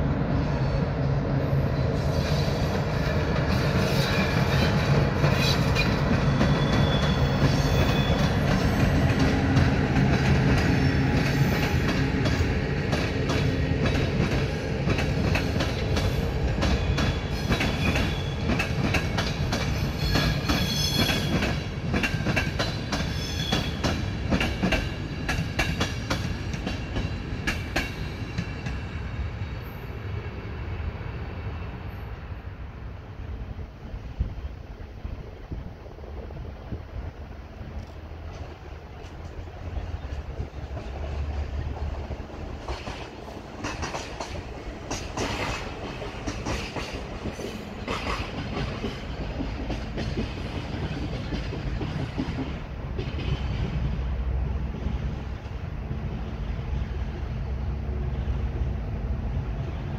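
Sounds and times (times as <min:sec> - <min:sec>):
low train drone: 0:00.0 - 0:59.9
train wheels clacking: 0:01.7 - 0:29.0, 0:37.8 - 0:54.0
high wheel squeals: 0:03.9 - 0:08.9, 0:23.0 - 0:23.8.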